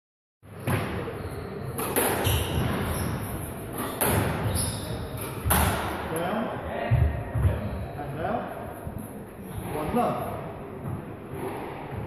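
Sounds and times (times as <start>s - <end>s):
squash ball hitting rackets and walls: 0.6s - 6.0s.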